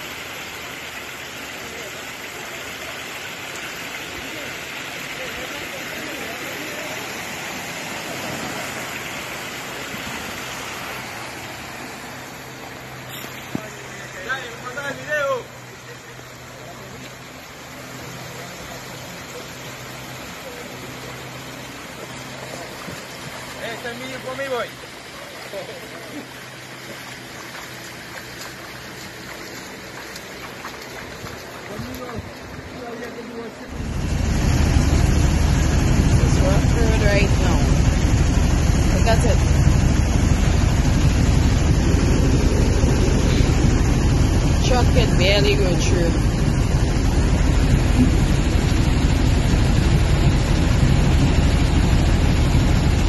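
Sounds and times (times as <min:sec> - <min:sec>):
floodwater rushing: 0:00.0 - 0:53.0
steady hiss of water: 0:00.0 - 0:53.0
low steady hum: 0:33.7 - 0:53.0.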